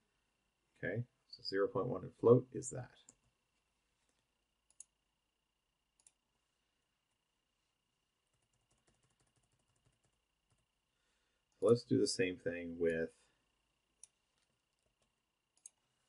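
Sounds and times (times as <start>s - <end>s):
computer keyboard and mouse clicks: 8.4s - 10.6s.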